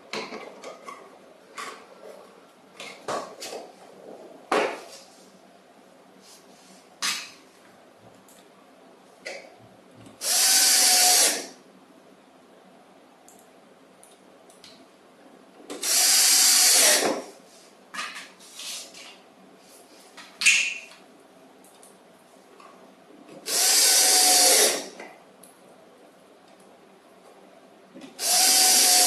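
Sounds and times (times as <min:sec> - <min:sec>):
cordless drill driving screws: 0:10.2 - 0:11.5, 0:15.8 - 0:17.2, 0:23.4 - 0:24.9, 0:28.2 - 0:29.0.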